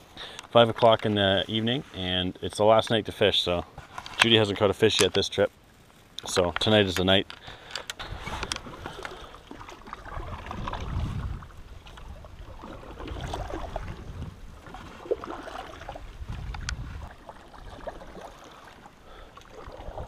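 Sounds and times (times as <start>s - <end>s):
faint clicks: 6.2s - 9.2s
canoe paddles swishing through water: 8.0s - 20.0s.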